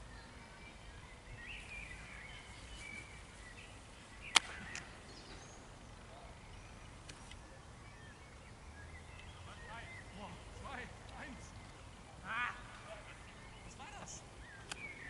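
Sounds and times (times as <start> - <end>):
faint birds chirping: 0.0 - 15.0.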